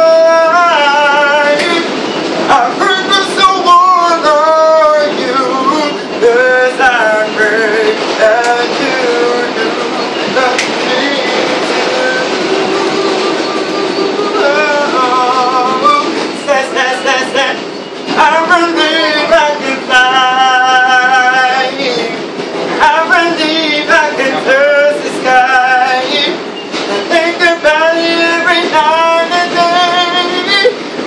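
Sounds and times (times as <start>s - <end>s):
man singing unaccompanied: 0.0s - 30.8s
subway car running noise: 0.0s - 31.0s.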